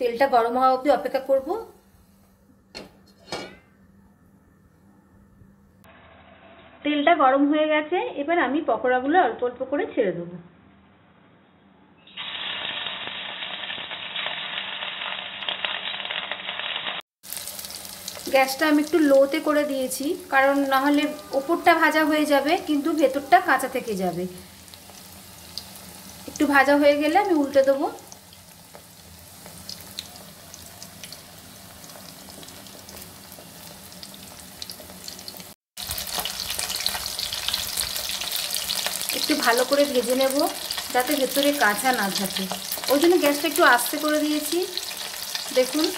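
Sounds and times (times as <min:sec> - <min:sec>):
chicken frying in hot oil: 0:12.1 - 0:21.2, 0:21.8 - 0:45.9.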